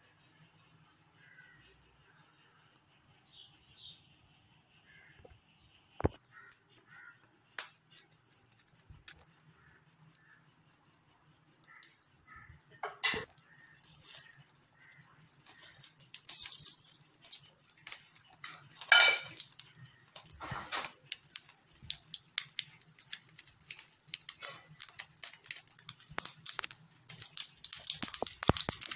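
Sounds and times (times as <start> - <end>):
seeds crackling and popping: 6.0 - 28.9
mustard seeds sizzling in oil: 11.2 - 28.9.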